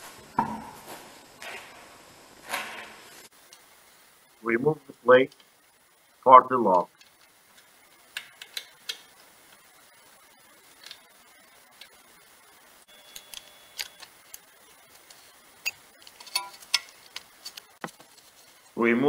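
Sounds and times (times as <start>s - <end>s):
screwdriver clicking and scraping metal: 13.1s - 14.4s, 15.0s - 18.0s.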